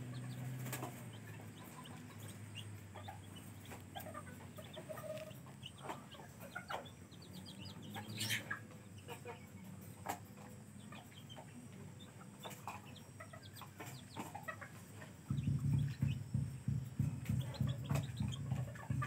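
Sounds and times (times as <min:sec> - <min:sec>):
chicks peeping: 0:00.0 - 0:19.0
low rhythmic pulsing: 0:10.6 - 0:19.0.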